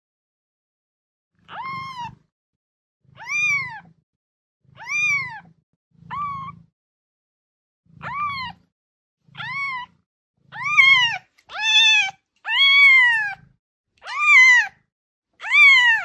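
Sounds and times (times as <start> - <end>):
kitten mewing: 8.0 - 8.6, 10.5 - 13.4.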